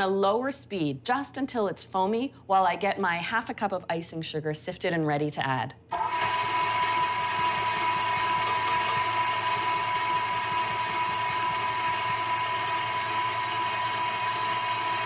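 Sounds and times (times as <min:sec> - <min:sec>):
stand mixer motor whine: 0:05.9 - 0:15.0.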